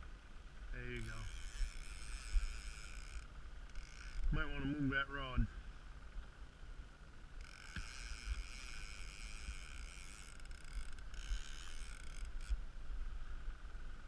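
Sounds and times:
outboard motor running: 0:00.0 - 0:12.9
fishing reel cranking: 0:00.9 - 0:04.7, 0:07.3 - 0:12.6.

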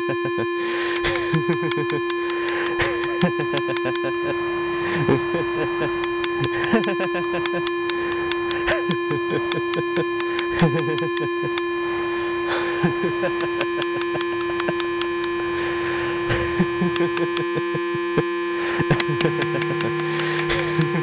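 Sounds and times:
electronic drone: 0:00.0 - 0:21.0
sharp clicks: 0:00.9 - 0:04.1, 0:05.9 - 0:11.7, 0:13.2 - 0:15.4, 0:16.8 - 0:17.6, 0:18.8 - 0:21.0.

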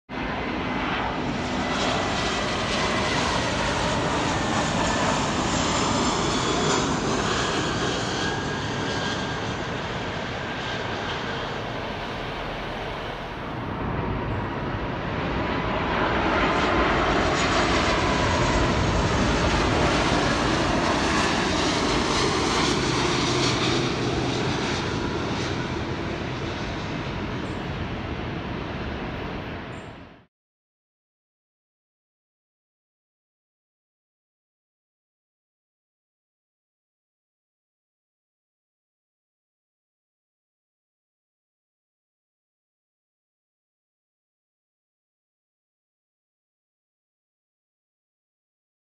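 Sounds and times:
jet airliner passing overhead: 0:00.1 - 0:30.3.

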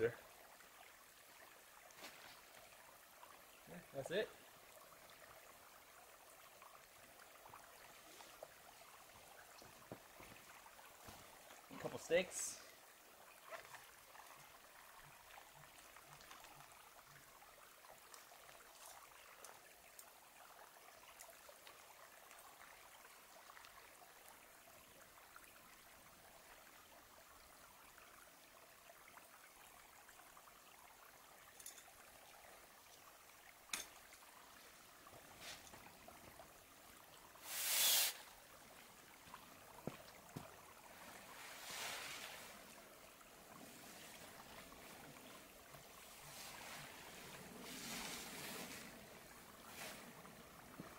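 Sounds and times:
faint rushing hiss: 0:34.6 - 0:36.0, 0:37.3 - 0:38.5, 0:40.9 - 0:50.9.

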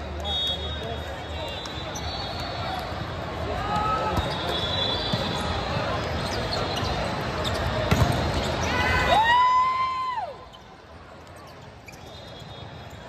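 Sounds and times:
crowd noise: 0:00.0 - 0:13.0.

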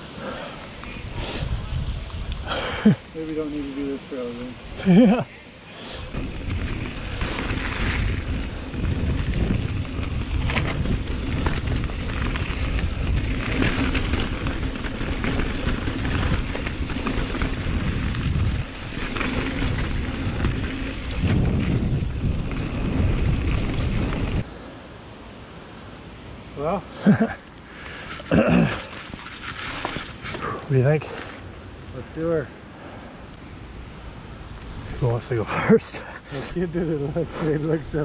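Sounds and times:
wind rumbling on microphone: 0:00.0 - 0:05.1, 0:05.9 - 0:24.5
bike clicks and rattles: 0:06.0 - 0:24.5, 0:27.5 - 0:30.5.

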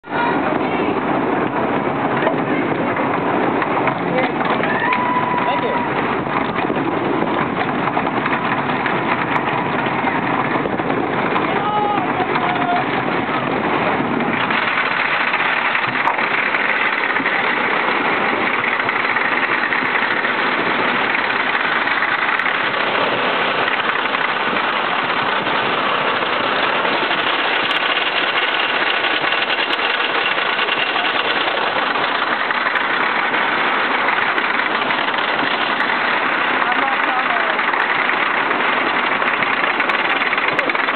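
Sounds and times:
lift chain clatter: 0:03.0 - 0:40.9.

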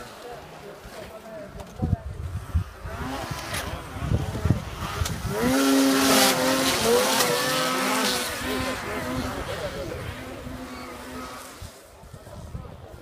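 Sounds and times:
snowmobile engine revving high: 0:02.4 - 0:12.0.

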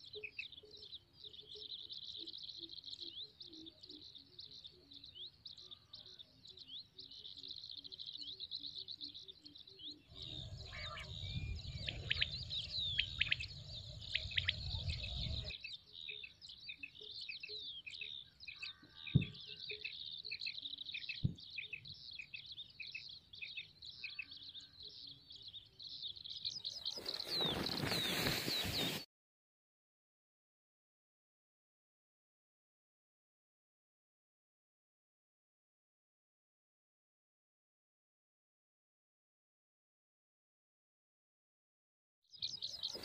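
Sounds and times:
small birds chirping: 0:00.0 - 0:29.1, 0:42.3 - 0:43.0.

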